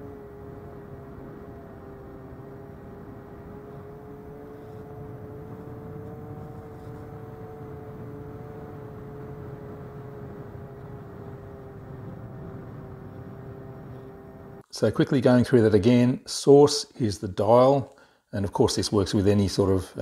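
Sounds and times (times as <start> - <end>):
electric motor and propeller hum: 0.0 - 14.6.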